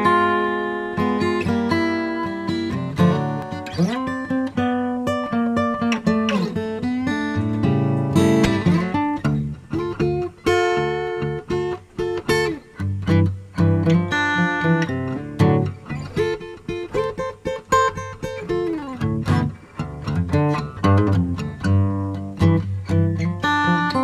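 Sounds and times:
plucked guitar melody: 0.0 - 24.0.

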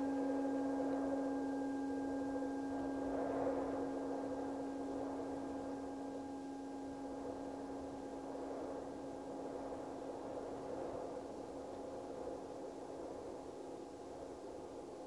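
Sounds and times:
singing bowl ringing: 0.0 - 9.2
rushing wind: 0.0 - 15.0.

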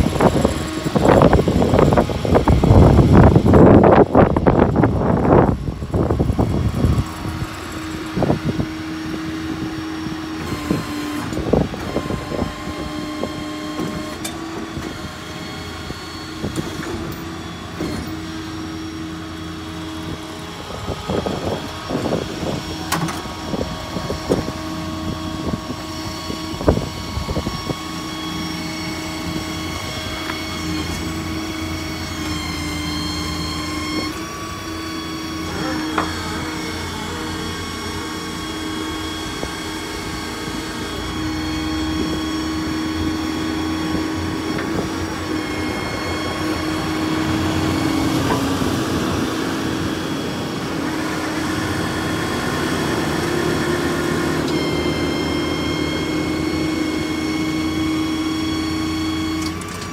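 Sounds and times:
hydraulic pump hum and whine: 0.0 - 59.9.

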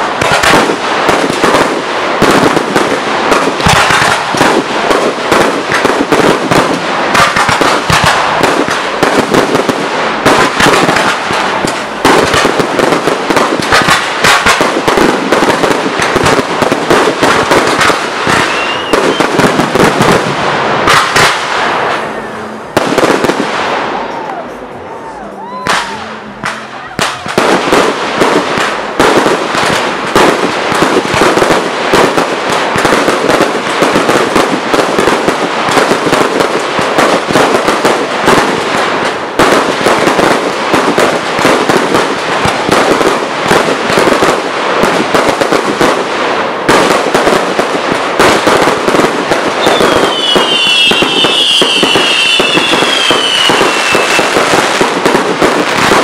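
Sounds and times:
firework shells bursting: 0.0 - 22.1, 48.2 - 56.0
dense firework crackling: 0.0 - 56.0
high firework whistles: 16.0 - 20.2, 49.5 - 54.8.

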